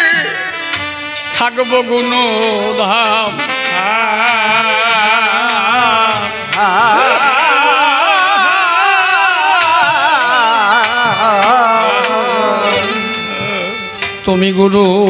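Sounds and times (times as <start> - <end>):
vibrato folk melody: 0.0 - 15.0
held drone: 3.7 - 14.2.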